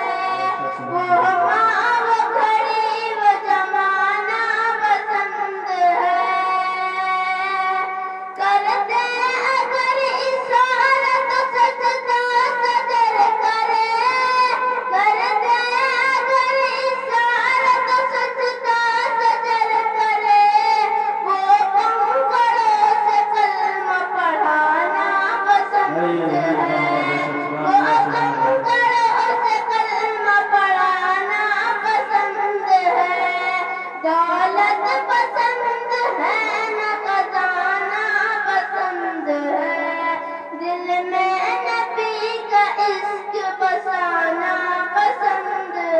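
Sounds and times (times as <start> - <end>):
boy singing into a microphone: 0.0 - 45.9.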